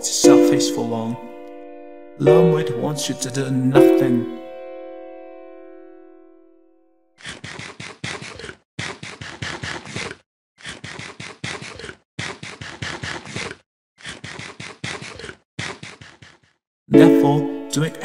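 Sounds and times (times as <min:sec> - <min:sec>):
plucked-string music: 0:00.0 - 0:06.8, 0:16.9 - 0:18.0.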